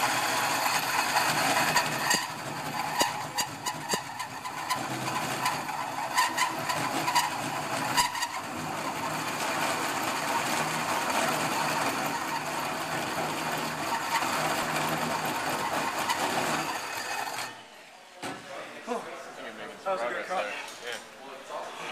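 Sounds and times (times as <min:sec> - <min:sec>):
power drill cutting metal: 0:00.0 - 0:17.6.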